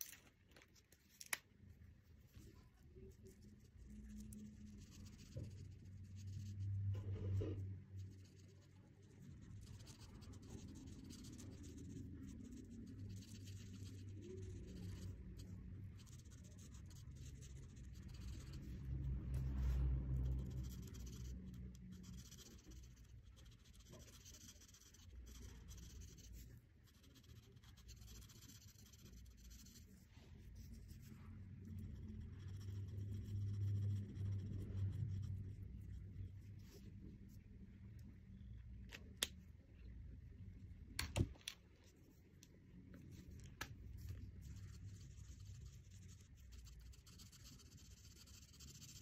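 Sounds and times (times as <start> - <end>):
marker scratching on paper: 2.2 - 37.4, 43.6 - 49.0.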